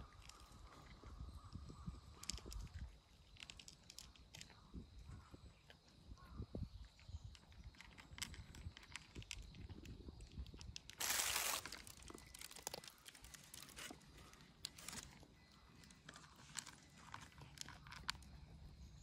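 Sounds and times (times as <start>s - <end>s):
cat crunching food: 7.4s - 15.2s
rustling noise: 11.0s - 15.2s.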